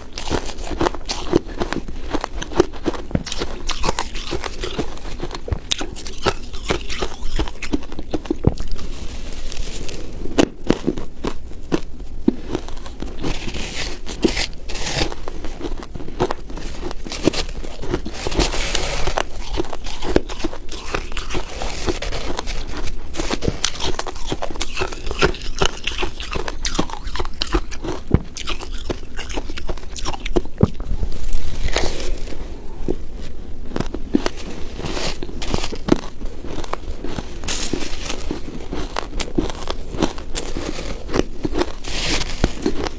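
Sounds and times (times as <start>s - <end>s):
crunching and chewing ice: 0.0s - 42.9s
metal spoon scraping ice: 17.1s - 27.9s.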